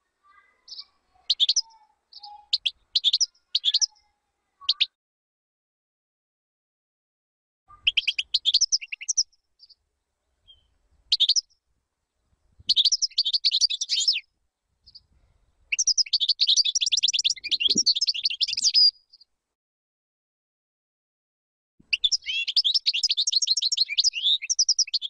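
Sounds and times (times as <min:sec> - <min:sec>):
bird twittering: 0:00.3 - 0:05.0, 0:07.7 - 0:09.8, 0:10.5 - 0:11.5, 0:12.7 - 0:14.2, 0:15.7 - 0:19.2, 0:21.9 - 0:25.0.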